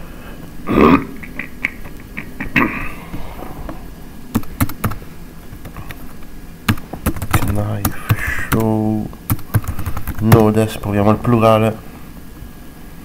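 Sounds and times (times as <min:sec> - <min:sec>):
computer keyboard key clicks: 0:04.4 - 0:05.0, 0:06.7 - 0:08.7, 0:09.3 - 0:10.3.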